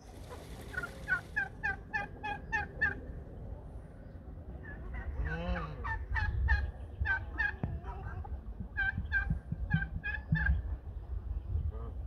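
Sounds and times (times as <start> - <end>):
poultry calling: 4.6 - 7.6.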